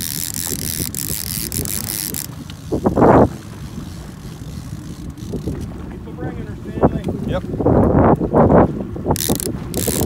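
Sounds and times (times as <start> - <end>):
fishing reel clicking: 0.0 - 5.7, 9.1 - 10.0
choppy water: 0.0 - 10.0
wind: 0.0 - 10.0.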